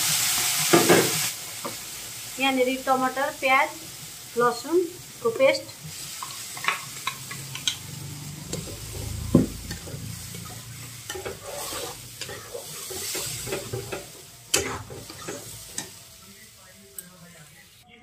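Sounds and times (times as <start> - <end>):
paste sizzling in hot oil: 0.0 - 16.7
metal spatula scraping pan: 6.1 - 16.0.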